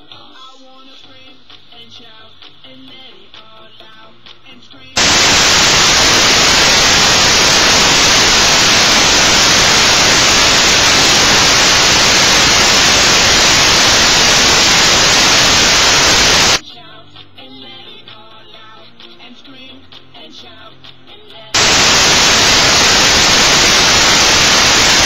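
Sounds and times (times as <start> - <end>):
static hiss: 5.0 - 16.6, 21.6 - 25.0.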